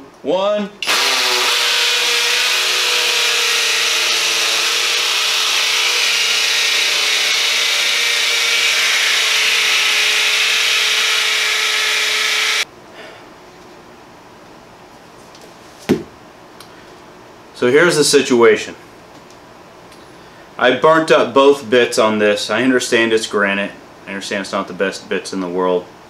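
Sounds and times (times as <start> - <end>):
hammer drill grinding into stone: 0.8 - 12.6.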